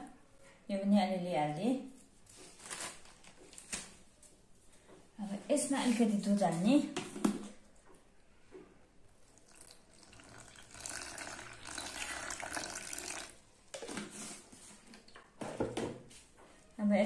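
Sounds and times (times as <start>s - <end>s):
milk trickling into bowl: 9.2s - 14.3s.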